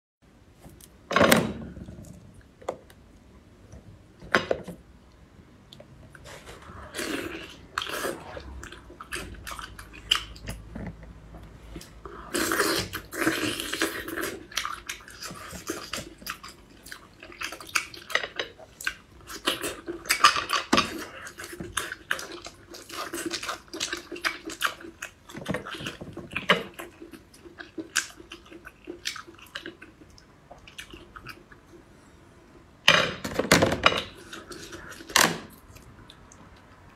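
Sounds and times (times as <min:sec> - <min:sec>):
chewing: 0:05.7 - 0:11.0, 0:11.7 - 0:31.8.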